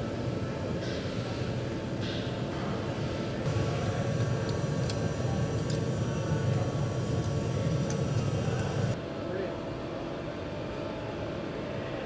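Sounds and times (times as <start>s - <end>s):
factory machinery humming: 3.4s - 9.0s.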